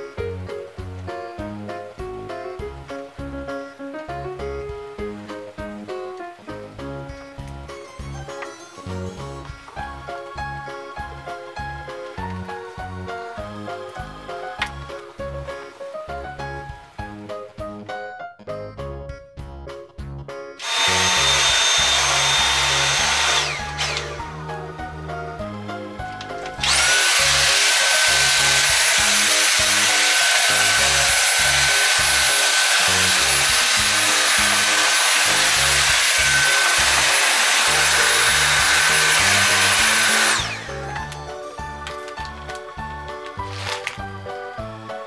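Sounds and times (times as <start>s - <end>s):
light background music: 0.0s - 45.0s
vacuum cleaner whining: 20.6s - 24.6s, 25.7s - 44.0s.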